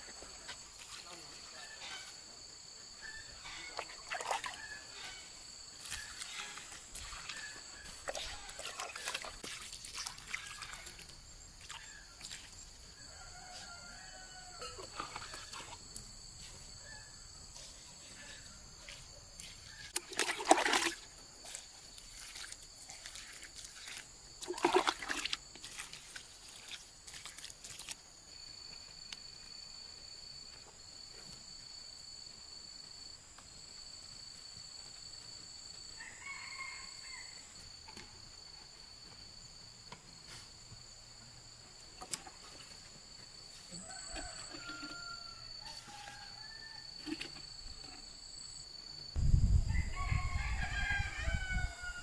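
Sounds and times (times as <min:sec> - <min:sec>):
water pouring onto soil: 0:08.1 - 0:12.5, 0:20.0 - 0:28.0.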